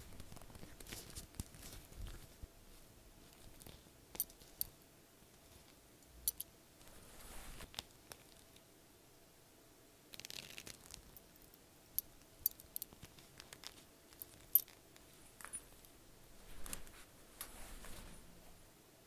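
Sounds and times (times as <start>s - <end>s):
metal buckle clicking: 6.2s - 6.5s, 11.4s - 14.8s.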